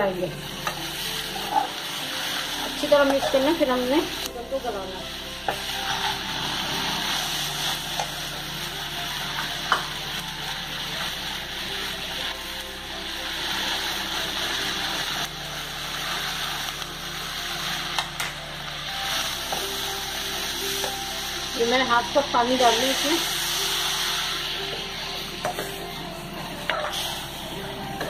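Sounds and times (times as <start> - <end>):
food sizzling in frying pan: 0.0 - 28.0.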